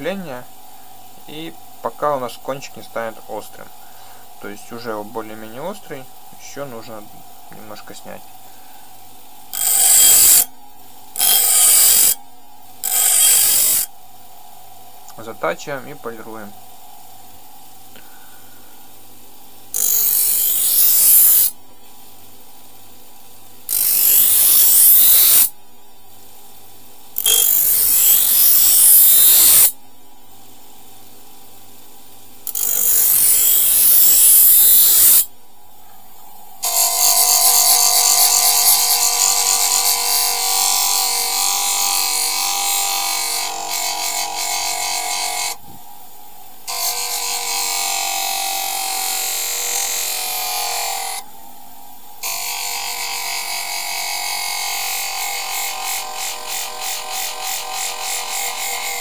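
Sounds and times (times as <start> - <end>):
bench grinder motor hum: 9.5 - 10.5, 11.2 - 12.2, 12.8 - 13.9, 19.8 - 21.5, 23.7 - 25.5, 27.2 - 29.8, 32.5 - 35.3, 36.6 - 45.6
knife blade grinding on wheel: 9.5 - 10.5, 11.2 - 12.2, 12.8 - 13.9, 19.7 - 21.6, 23.7 - 25.5, 27.2 - 29.8, 32.5 - 35.3, 36.6 - 45.6, 46.7 - 51.2, 52.2 - 59.0.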